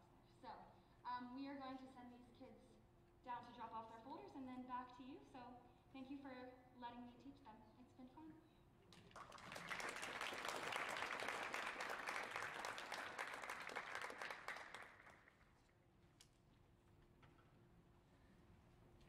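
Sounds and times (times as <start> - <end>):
audience applauding: 9.0 - 15.5.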